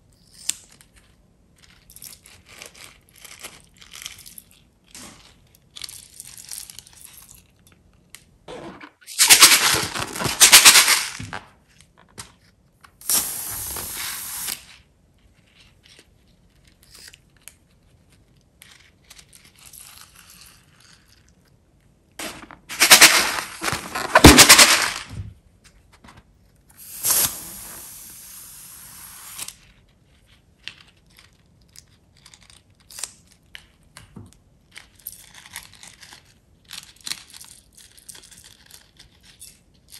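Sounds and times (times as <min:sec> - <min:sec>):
plastic packaging crinkling and tearing: 0:01.9 - 0:07.0, 0:09.0 - 0:11.3, 0:22.2 - 0:25.1.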